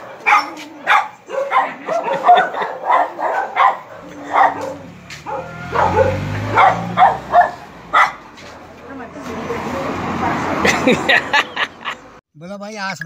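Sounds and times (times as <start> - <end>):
dogs barking: 0.0 - 8.7
vehicle engine: 0.0 - 12.2.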